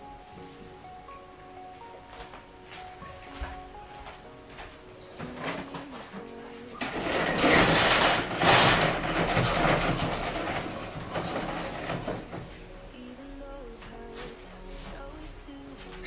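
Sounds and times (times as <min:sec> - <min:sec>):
roller shutter rattling up: 0:05.0 - 0:12.9.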